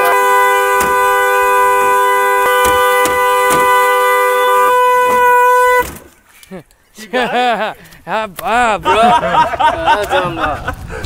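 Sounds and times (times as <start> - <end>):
dual-tone car horn blaring: 0.0 - 6.1
sharp knocks: 0.8 - 1.7, 2.5 - 3.9.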